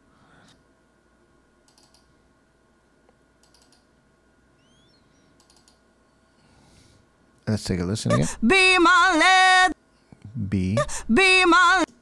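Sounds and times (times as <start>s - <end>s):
faint computer mouse clicks: 1.6s - 2.1s, 3.1s - 3.9s, 5.4s - 5.8s.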